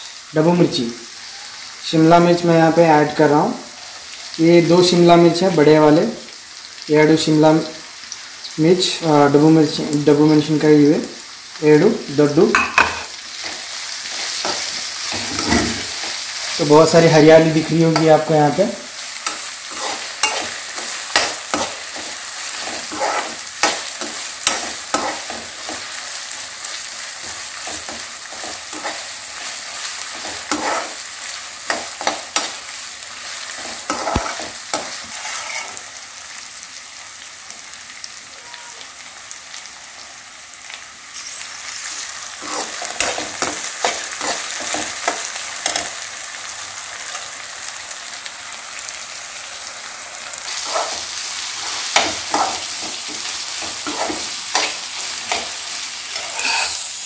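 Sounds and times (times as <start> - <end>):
vegetables sizzling in oil: 0.0 - 57.0
skimmer scraping metal pan: 15.1 - 15.9, 56.2 - 56.9.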